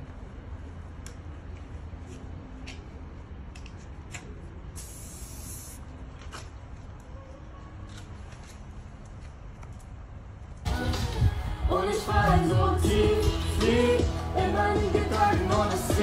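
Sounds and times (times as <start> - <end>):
spray can hissing: 4.8 - 5.9
steady low rumble: 9.8 - 16.0.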